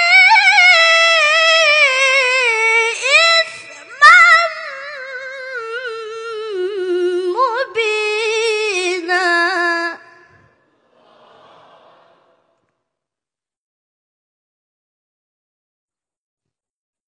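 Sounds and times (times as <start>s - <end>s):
boy reciting in melismatic chant: 0.0s - 10.3s.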